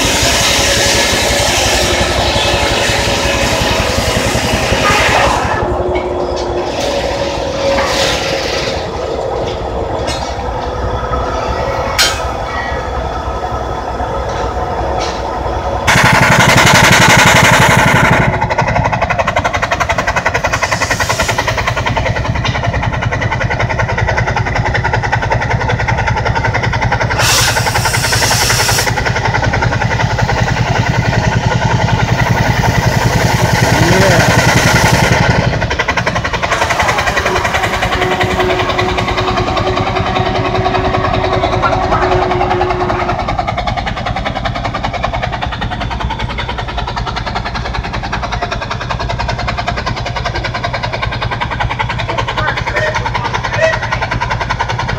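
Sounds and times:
steam hiss: 0:00.0 - 0:04.9, 0:20.5 - 0:21.8, 0:27.1 - 0:29.1
steam engine exhaust beating: 0:00.0 - 0:54.9.

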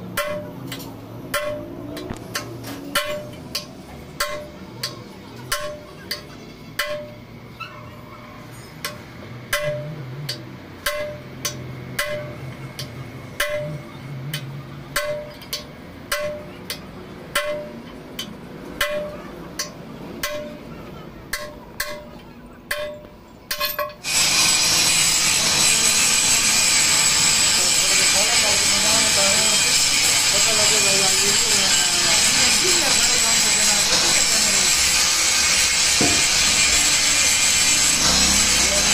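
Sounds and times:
angle grinder running: 0:24.0 - 0:38.9.

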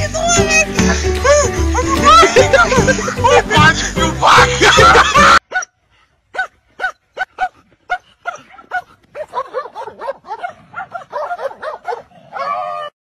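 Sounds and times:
dog yelping: 0:05.4 - 0:05.7, 0:06.4 - 0:12.9.

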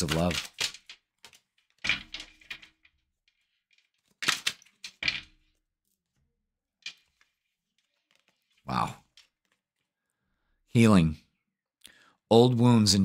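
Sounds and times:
cards slapping onto table: 0:00.0 - 0:02.7, 0:04.1 - 0:05.4.

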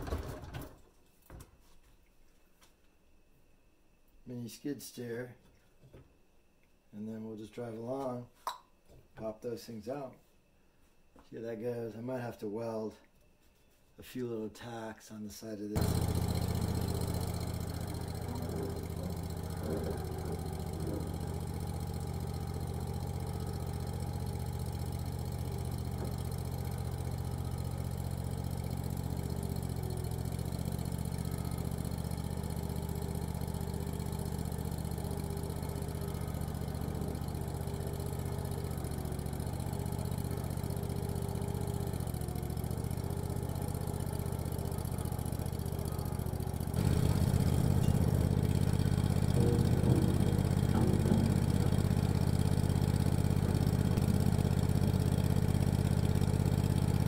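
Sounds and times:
skid steer engine running: 0:15.8 - 0:57.0.

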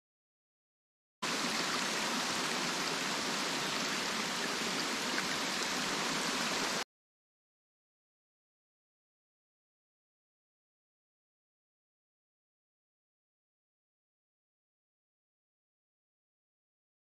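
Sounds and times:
stream water rushing: 0:01.2 - 0:06.8.

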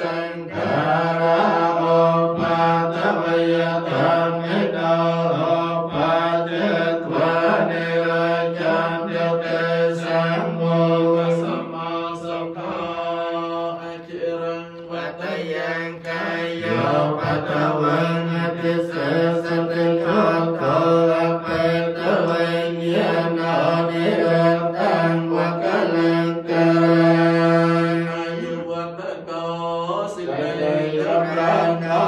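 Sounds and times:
group chanting in unison: 0:00.0 - 0:32.0.

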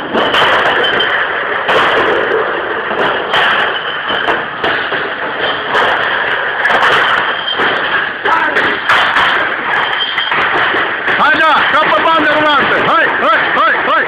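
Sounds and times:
bottle crates clattering: 0:00.0 - 0:14.0
steady loud noise: 0:00.0 - 0:14.0.

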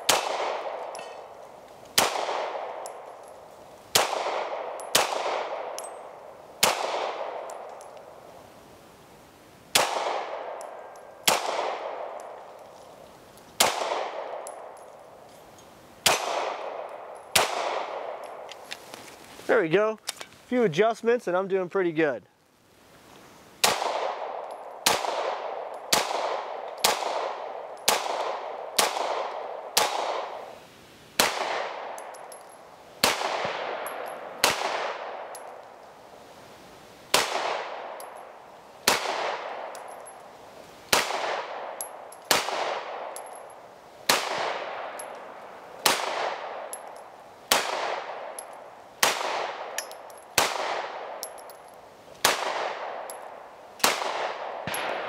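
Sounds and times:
pistol shots echoing: 0:00.0 - 0:01.3, 0:02.0 - 0:03.0, 0:03.9 - 0:07.9, 0:09.7 - 0:12.4, 0:13.6 - 0:14.8, 0:16.0 - 0:18.4, 0:23.6 - 0:30.4, 0:31.2 - 0:32.3, 0:33.0 - 0:35.5, 0:37.1 - 0:38.2, 0:38.8 - 0:40.1, 0:40.9 - 0:43.5, 0:44.1 - 0:45.1, 0:45.8 - 0:51.5, 0:52.2 - 0:55.0.

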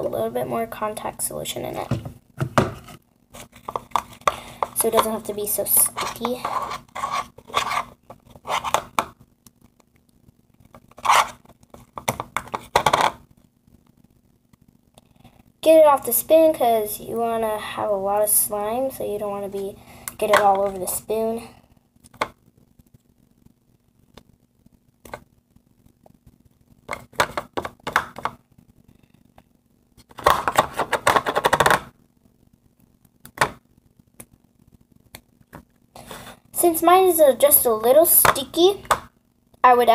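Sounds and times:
spoon stirring sticky slime: 0:04.3 - 0:08.0.

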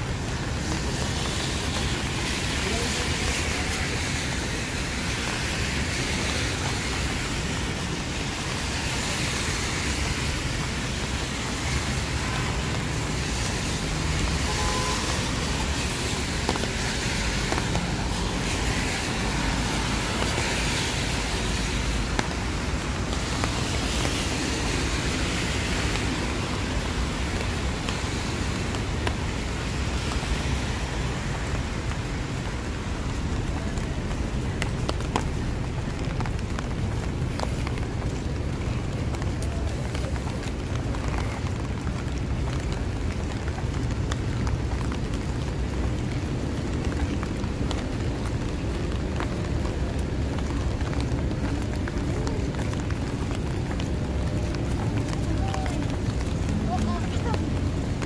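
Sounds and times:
tyre hiss on wet road: 0:00.0 - 0:40.6
steady rain: 0:00.0 - 0:58.0
traffic engines rumbling: 0:00.0 - 0:58.0.

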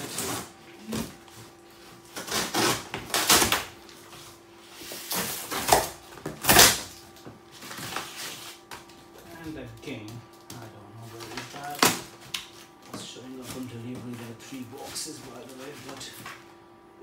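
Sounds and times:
cardboard scraping and rustling: 0:00.0 - 0:08.7
wrapping tearing: 0:02.0 - 0:03.8.

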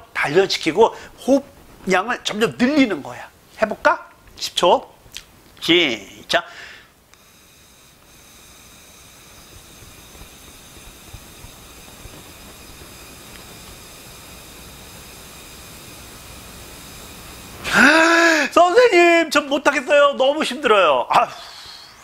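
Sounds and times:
exhale through drinking straw: 0:06.5 - 0:09.0, 0:21.3 - 0:22.0.

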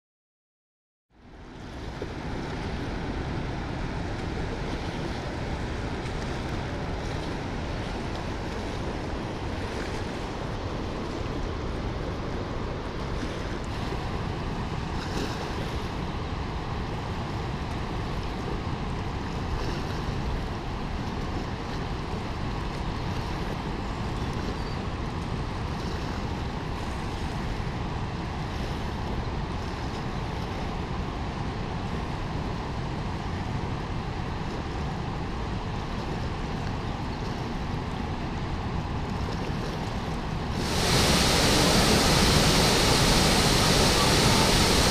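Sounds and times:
waterfall rushing: 0:40.5 - 0:44.9.

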